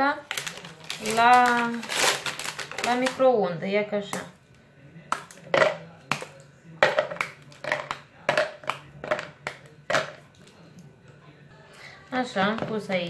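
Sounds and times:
chocolate bars snapping: 0:05.1 - 0:10.2.

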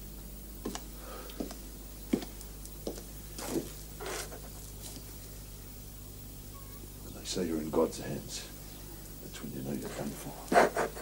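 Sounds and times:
steady low hum: 0:00.0 - 0:11.0
footsteps on wooden floorboards: 0:01.4 - 0:05.0.

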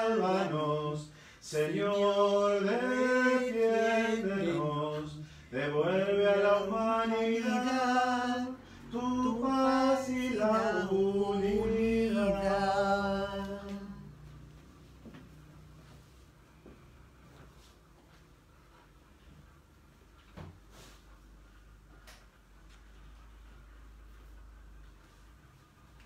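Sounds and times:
man singing a hymn unaccompanied: 0:00.0 - 0:14.2.

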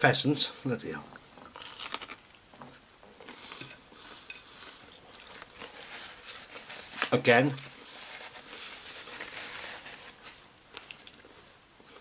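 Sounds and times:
paper towel rustling: 0:05.5 - 0:10.5.

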